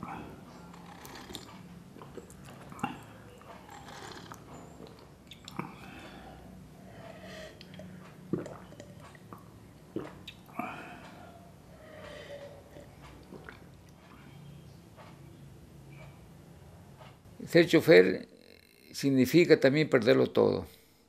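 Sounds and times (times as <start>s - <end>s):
man slurping and swallowing: 0.1s - 5.9s, 7.6s - 10.6s.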